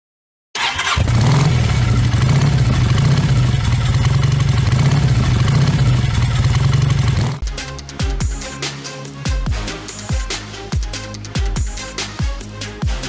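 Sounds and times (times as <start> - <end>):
motorcycle engine running: 0.6 - 7.6.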